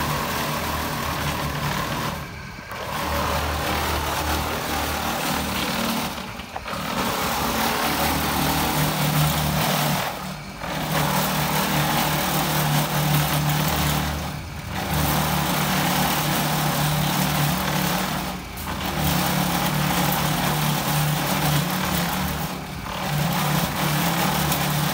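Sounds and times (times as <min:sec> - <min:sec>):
concrete mixer humming: 0:00.0 - 0:24.9.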